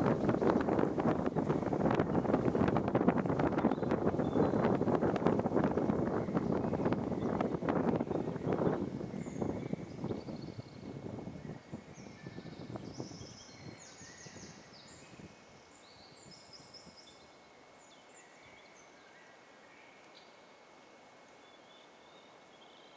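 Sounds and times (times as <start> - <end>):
low microphone rumble: 0.0 - 15.3
songbirds chirping and trilling: 0.0 - 22.9.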